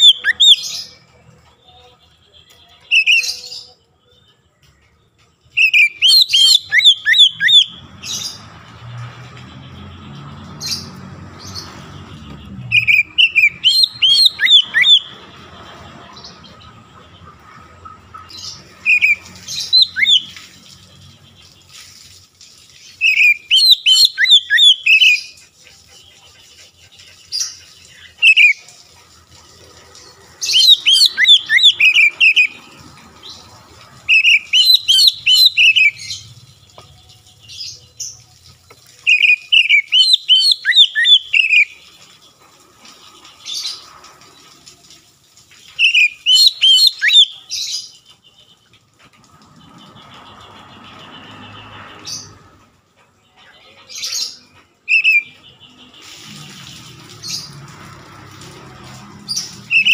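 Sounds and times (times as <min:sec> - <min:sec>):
bird singing whistled phrases: 0:00.0 - 0:00.8, 0:02.8 - 0:03.7, 0:05.6 - 0:07.8, 0:12.7 - 0:15.1, 0:18.8 - 0:20.4, 0:23.0 - 0:25.3, 0:28.2 - 0:28.6, 0:30.5 - 0:32.6, 0:34.1 - 0:36.2, 0:39.0 - 0:41.8, 0:45.8 - 0:47.5, 0:54.9 - 0:55.4, 0:59.7 - 0:59.9.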